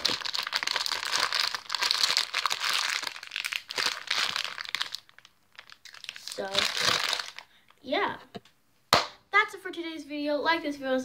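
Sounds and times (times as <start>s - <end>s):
plastic bag crinkling: 0.0s - 7.8s.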